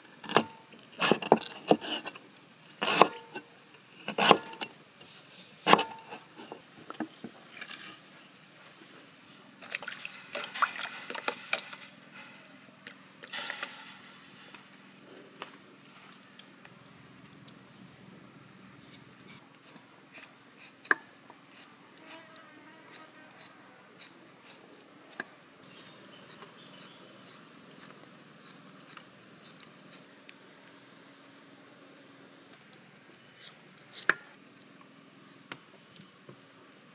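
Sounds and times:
cleaver chopping on wooden board: 2.8s - 3.2s, 4.1s - 4.6s, 5.7s - 6.0s
small knife slicing on board: 2.8s - 3.3s
rustling and clattering of ingredients: 5.8s - 16.4s.

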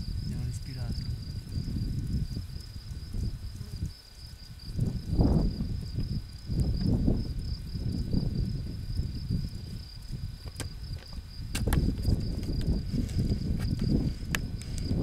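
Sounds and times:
insect trilling: 0.0s - 15.0s.

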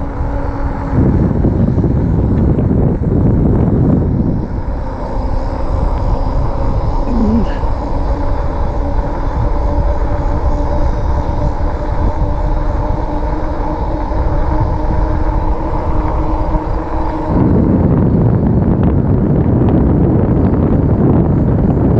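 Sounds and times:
electric motor whine: 0.0s - 21.9s
wind rumble on microphone: 0.0s - 21.9s.

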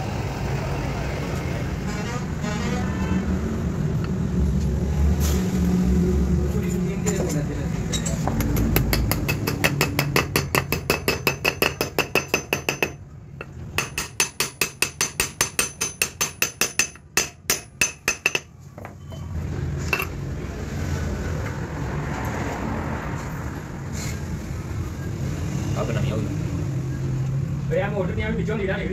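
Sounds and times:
hammer tapping on metal drift: 8.3s - 18.5s.

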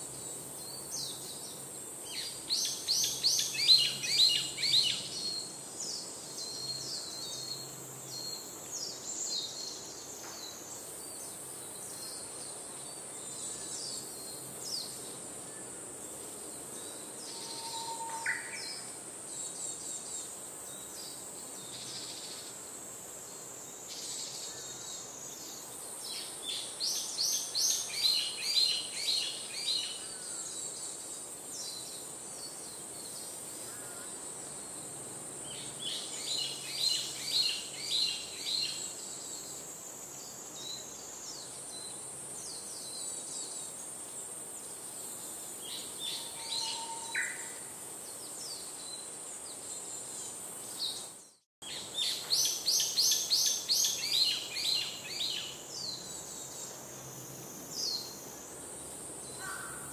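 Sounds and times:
songbird chirping: 0.0s - 59.9s
high-pitched insect drone: 17.2s - 19.0s.

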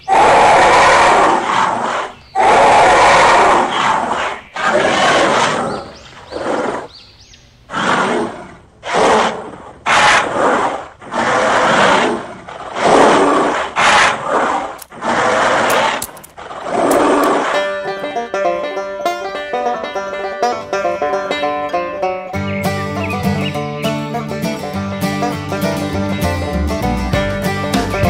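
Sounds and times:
dinosaur roars: 0.0s - 6.9s, 7.7s - 17.7s.

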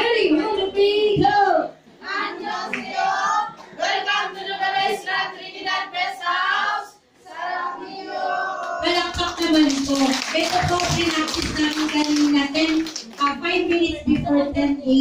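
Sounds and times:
women singing together: 1.1s - 9.3s.

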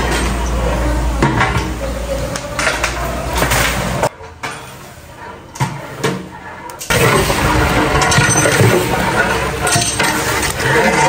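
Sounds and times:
metal clanks and knocks: 5.5s - 11.0s.

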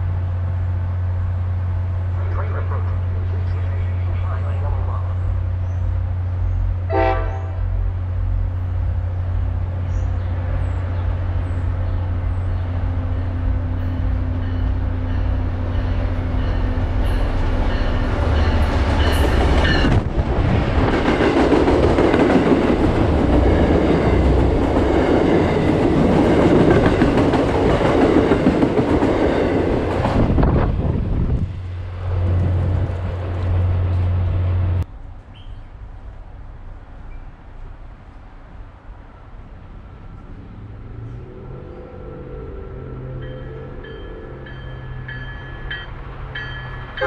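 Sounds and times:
train rushing and rumbling by: 0.0s - 47.0s
low drone: 39.9s - 45.4s.

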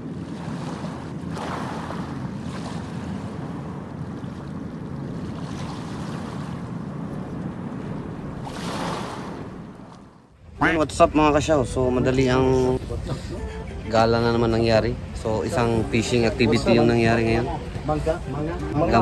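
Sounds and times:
wind on microphone: 0.0s - 10.6s.

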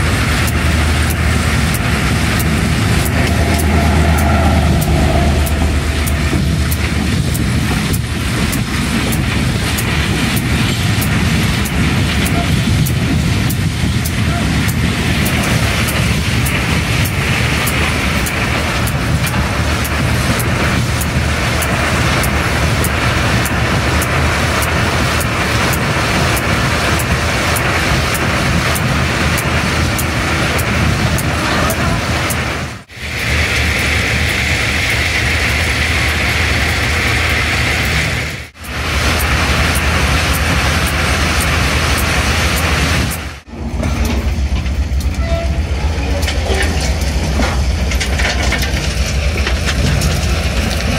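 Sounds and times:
diesel engine hum: 0.0s - 50.9s
train wagons rattling on rails: 0.0s - 50.9s.

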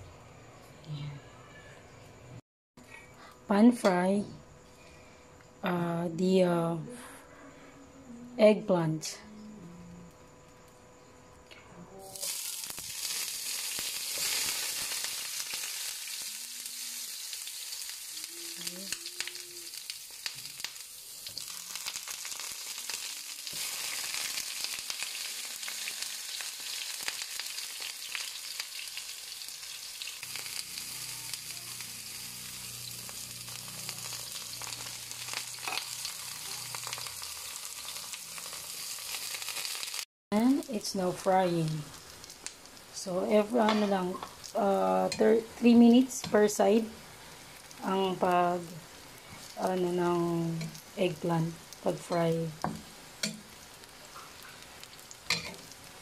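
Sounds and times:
vegetable slices sizzling in oil: 12.0s - 56.0s.

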